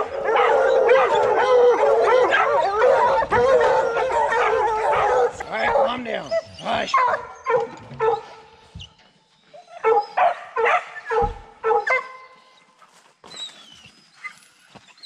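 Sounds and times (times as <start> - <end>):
dogs barking: 0.0 - 8.6, 9.7 - 12.3.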